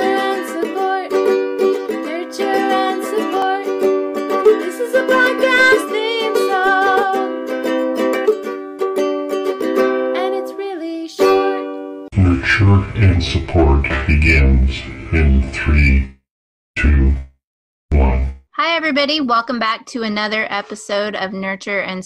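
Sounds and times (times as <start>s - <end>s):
plucked strings music: 0.0s - 12.1s.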